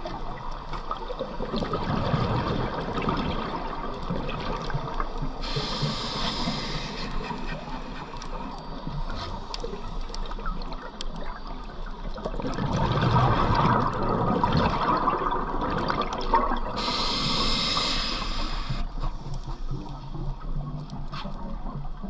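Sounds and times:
exhaled bubbles underwater: 0:00.0 - 0:22.0
regulator inhalation hiss: 0:05.4 - 0:08.4, 0:16.8 - 0:18.9.

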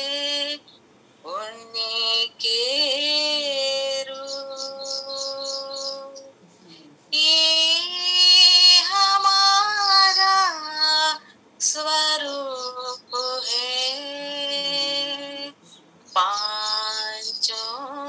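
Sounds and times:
woman singing unaccompanied: 0:00.0 - 0:18.0.

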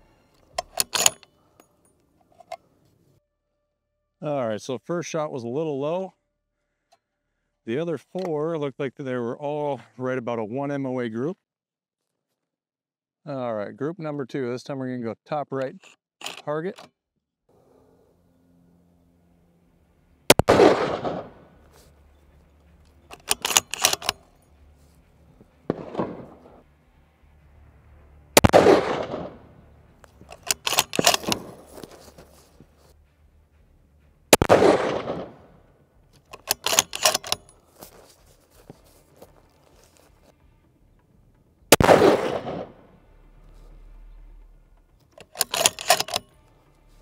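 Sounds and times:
rifle bolt metallic clacks: 0:00.4 - 0:02.6, 0:15.7 - 0:16.9, 0:22.8 - 0:24.4, 0:30.0 - 0:32.0, 0:36.1 - 0:37.6, 0:45.0 - 0:46.4
rifle shots ringing: 0:00.6 - 0:01.2, 0:20.3 - 0:21.9, 0:23.0 - 0:24.4, 0:25.6 - 0:26.6, 0:28.4 - 0:29.6, 0:30.3 - 0:32.2, 0:34.3 - 0:35.7, 0:36.3 - 0:37.6, 0:41.7 - 0:42.9, 0:45.3 - 0:46.3.

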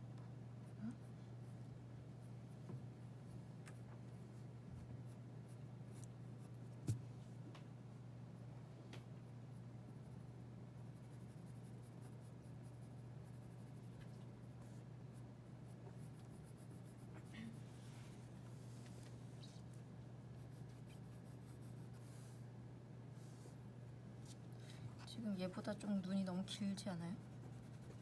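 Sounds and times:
steady low hum: 0:00.0 - 0:28.0
pencil scratching on paper: 0:10.8 - 0:17.8, 0:20.4 - 0:22.2, 0:27.1 - 0:28.0.

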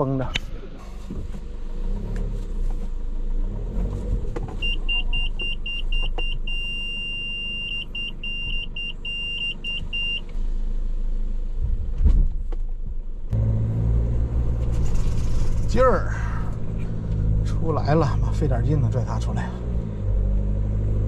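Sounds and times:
parking sensor beeping: 0:04.6 - 0:10.3
engines idling: 0:13.3 - 0:20.6.

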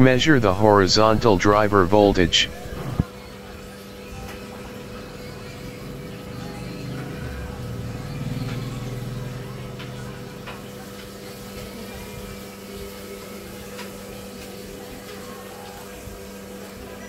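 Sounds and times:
low background hum: 0:00.0 - 0:17.0
low rumble: 0:02.5 - 0:03.0.

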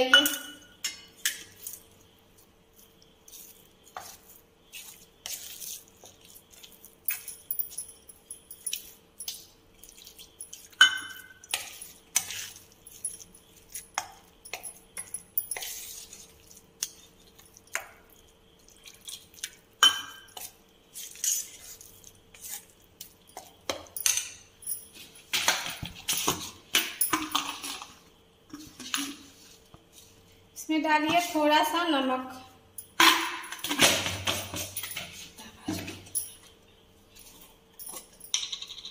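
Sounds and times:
spoon stirring batter in steel bowl: 0:00.2 - 0:30.2.

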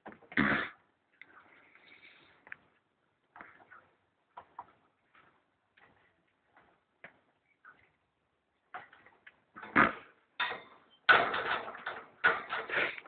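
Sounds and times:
clattering knocks and rustles: 0:10.4 - 0:13.0.

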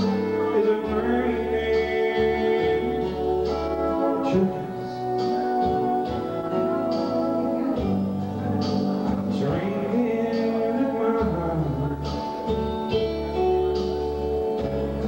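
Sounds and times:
man singing: 0:00.0 - 0:13.9
acoustic guitar: 0:00.0 - 0:15.0
backing band accompaniment: 0:00.0 - 0:15.0.

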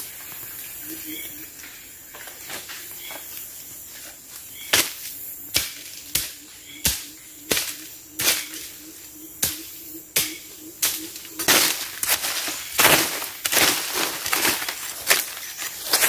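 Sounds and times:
hand tool chopping into soil: 0:04.7 - 0:08.6, 0:09.4 - 0:16.0.

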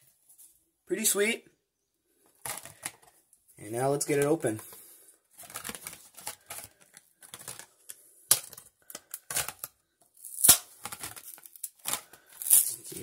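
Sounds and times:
plastic blister pack crackling: 0:04.0 - 0:13.0.

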